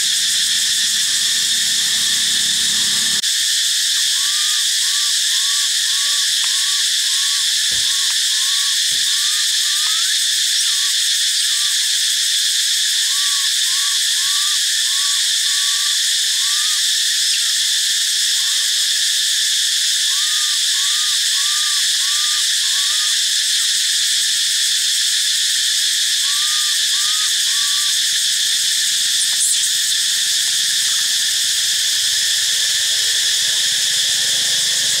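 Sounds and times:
animal chirping: 0.0s - 3.2s, 26.2s - 28.0s, 28.6s - 35.0s
forest insects chorus: 0.0s - 35.0s.

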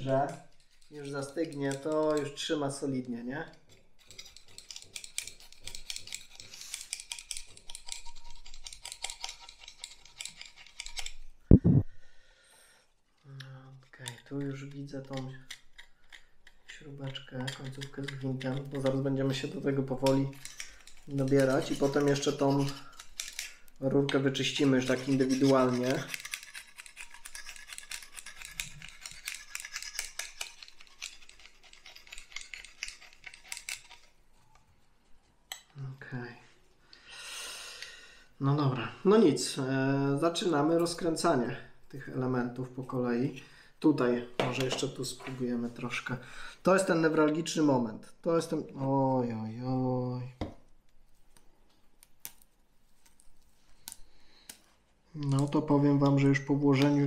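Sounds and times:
knife blade scraping foam: 3.4s - 11.8s, 13.9s - 34.2s.

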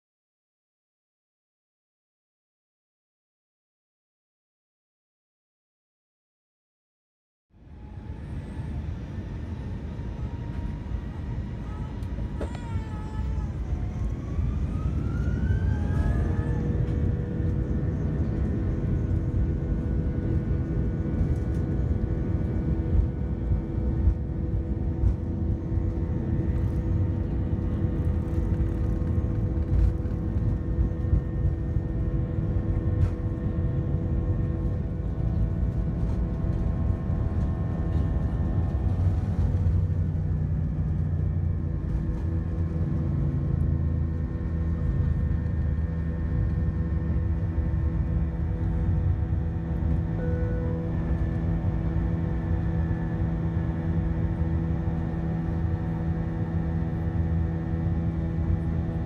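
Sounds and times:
loud continuous rumble: 7.6s - 59.0s.

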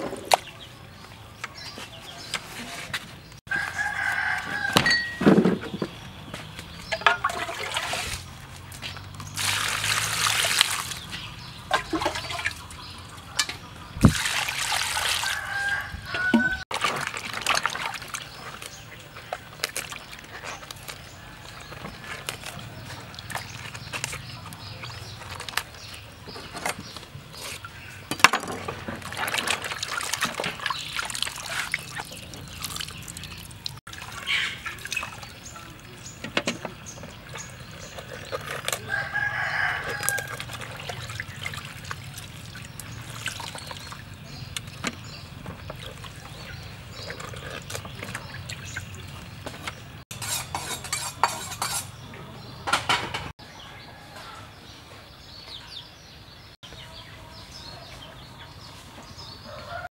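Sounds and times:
rooster crowing: 3.5s - 5.2s, 15.2s - 16.6s, 38.8s - 40.4s, 59.5s - 59.9s
water splashing and dripping: 6.0s - 50.0s.

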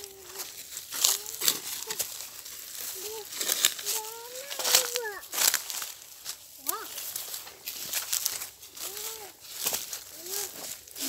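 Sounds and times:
footsteps crunching dry leaves: 0.0s - 11.0s.

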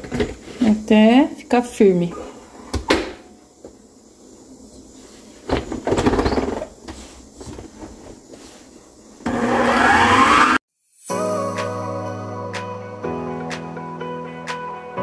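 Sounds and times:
mixer motor whine: 9.2s - 10.6s.

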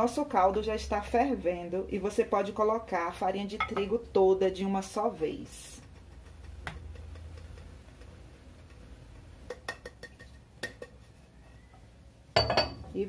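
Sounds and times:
low steady hum: 0.0s - 13.0s
utensils clicking on a pan: 5.6s - 11.1s.

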